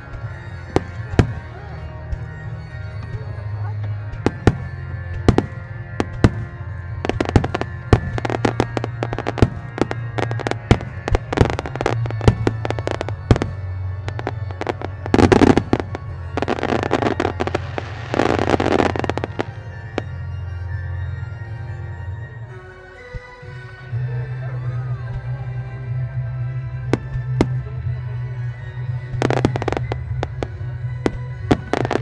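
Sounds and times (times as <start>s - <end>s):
music: 0.0s - 32.0s
fireworks cracking and banging: 0.1s - 2.4s, 4.1s - 19.6s, 29.2s - 32.0s.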